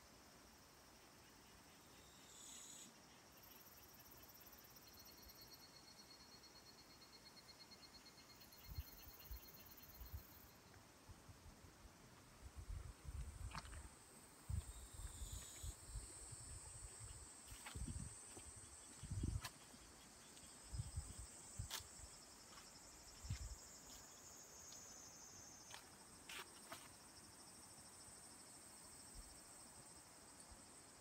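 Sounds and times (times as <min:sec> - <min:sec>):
insects chirring: 0:13.5 - 0:29.9
wind bumps on microphone: 0:16.6 - 0:18.2, 0:19.0 - 0:19.5.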